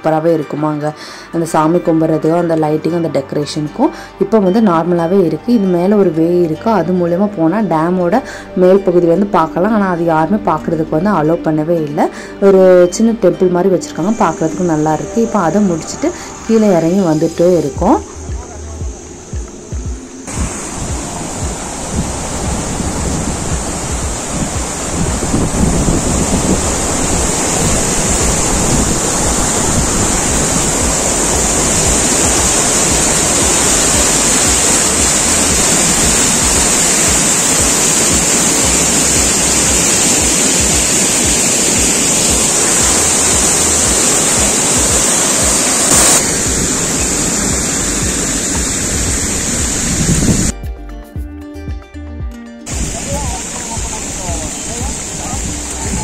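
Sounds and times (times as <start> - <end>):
water rushing down a cascade: 14.1 - 50.5, 52.7 - 56.0.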